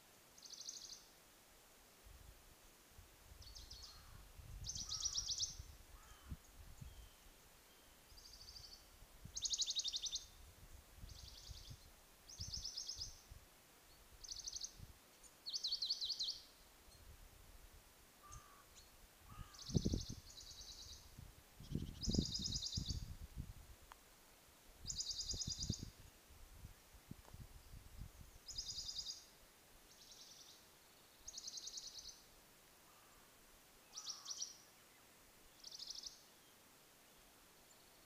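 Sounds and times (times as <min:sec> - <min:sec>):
songbird trilling: 0:03.4 - 0:08.8, 0:18.2 - 0:21.0, 0:33.9 - 0:34.6.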